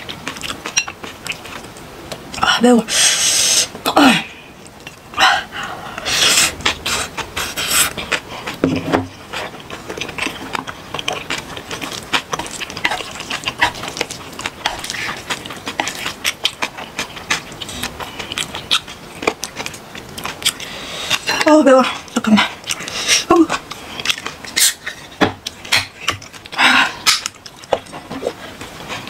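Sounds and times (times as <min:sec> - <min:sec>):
noodles slurped and chewed: 0:06.0 - 0:29.0.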